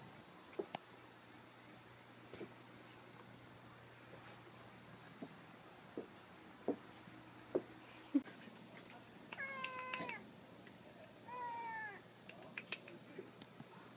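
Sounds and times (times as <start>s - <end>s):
cat meowing: 9.4s - 10.2s, 11.3s - 12.0s.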